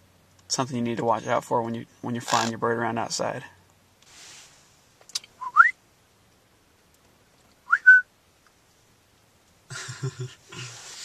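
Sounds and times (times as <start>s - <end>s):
short rising whistles: 5.4s - 5.8s, 7.7s - 8.0s.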